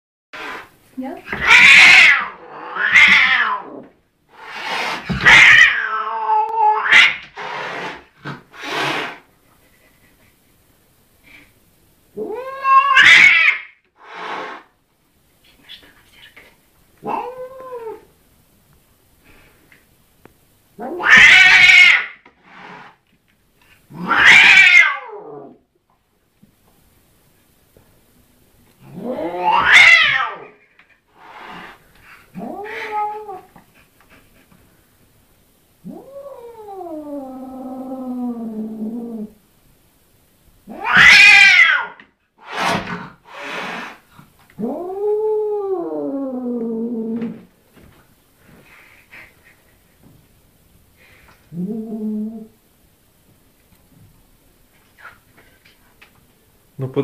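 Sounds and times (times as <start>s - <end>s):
cat hissing: 0.4s - 9.4s, 12.2s - 14.8s, 20.8s - 23.0s, 23.8s - 25.5s, 28.8s - 34.6s, 40.7s - 46.2s
cat yowling: 1.4s - 3.8s, 12.2s - 13.8s, 20.8s - 22.2s, 24.0s - 25.5s, 28.9s - 30.5s, 40.7s - 42.0s.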